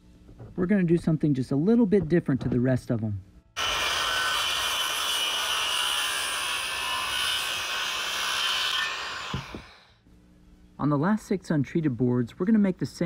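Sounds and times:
electric saw cutting wood: 0:03.6 - 0:09.9.

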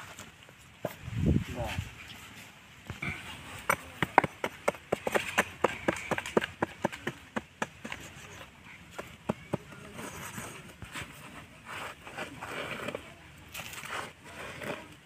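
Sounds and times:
axe chopping into stony soil: 0:03.6 - 0:08.1
earth scraped out by hand: 0:09.7 - 0:15.0.

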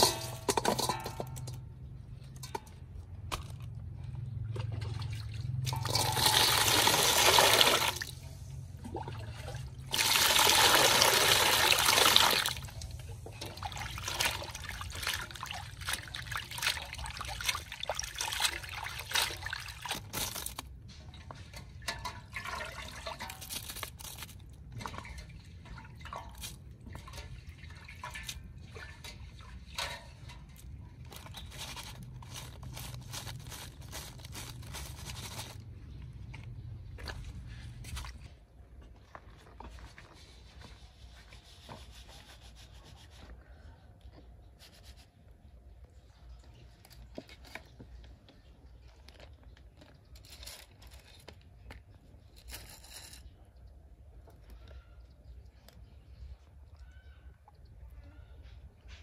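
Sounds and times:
water pouring and splashing: 0:03.3 - 0:35.8
water trickling: 0:04.4 - 0:30.8.

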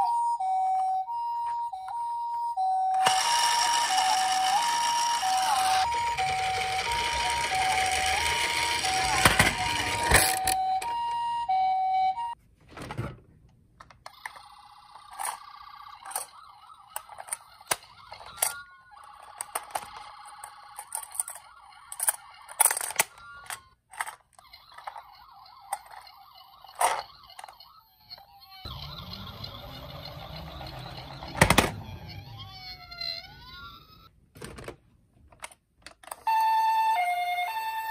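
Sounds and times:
toy two-tone ambulance siren: 0:00.0 - 0:12.4, 0:14.1 - 0:34.1, 0:36.0 - 0:37.9
plastic toys clicking in box: 0:06.8 - 0:10.6, 0:16.0 - 0:16.4, 0:17.0 - 0:26.1.

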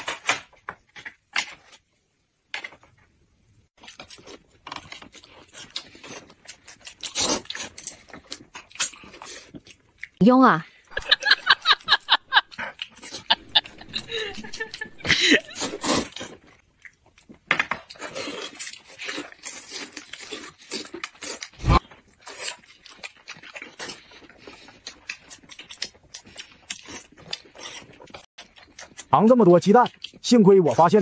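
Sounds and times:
people slurping noodles: 0:10.9 - 0:16.5, 0:18.0 - 0:22.6.

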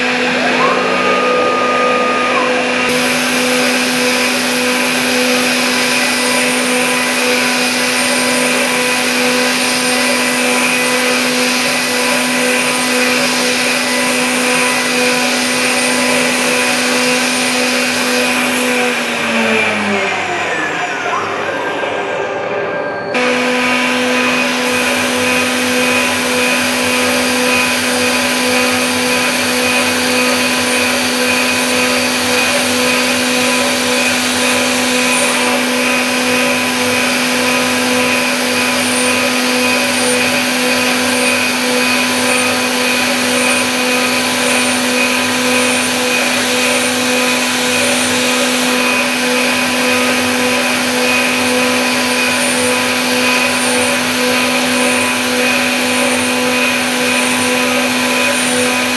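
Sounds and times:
milling machine spindle whine: 0:00.0 - 0:58.9.

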